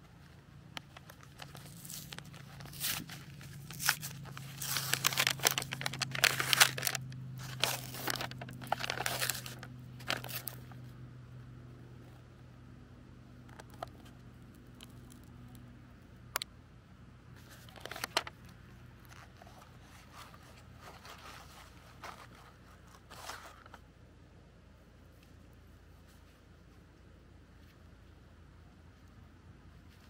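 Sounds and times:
low steady hum: 0.0 - 30.0
packaging rustling and crinkling: 0.8 - 10.8, 17.4 - 23.8.

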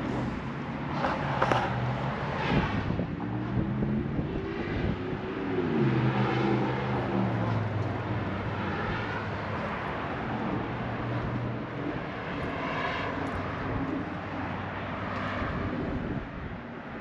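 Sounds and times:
vehicles passing: 0.0 - 17.0.

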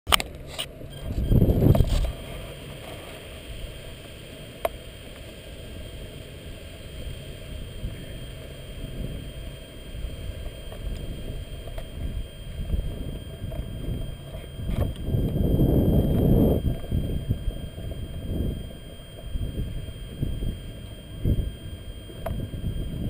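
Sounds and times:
sharp click: 0.1 - 0.7
wind buffeting microphone: 1.0 - 2.4, 7.4 - 23.0.

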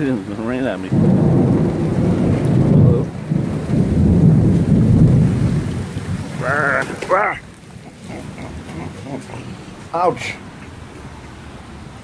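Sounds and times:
rain and hail falling: 0.0 - 12.0
thunder rumble: 0.9 - 9.9.

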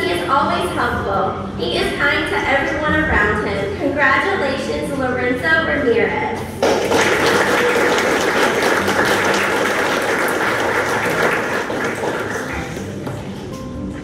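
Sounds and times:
audience applauding: 6.6 - 13.3.

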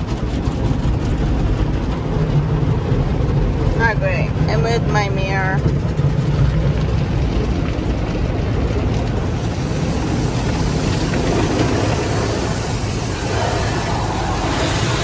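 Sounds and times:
car wash rumble: 0.0 - 15.0
water spray hissing on glass: 9.3 - 15.0.

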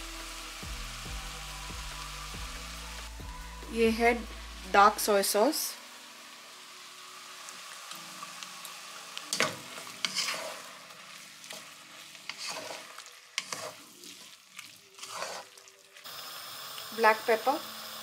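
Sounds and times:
rice sizzling in a wok: 0.0 - 18.0
wooden spatula scraping wok: 9.3 - 16.1.

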